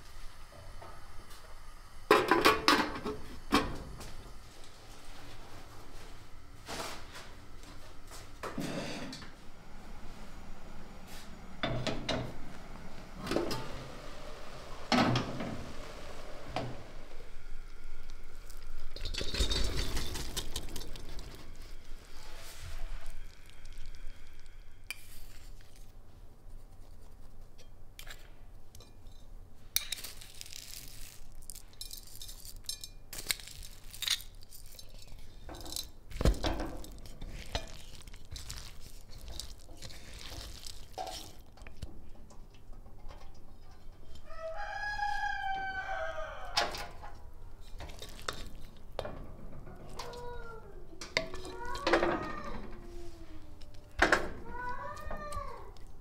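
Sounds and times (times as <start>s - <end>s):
wooden spoon scraping rice in bowl: 36.2s - 41.6s
rooster crowing: 44.2s - 47.0s.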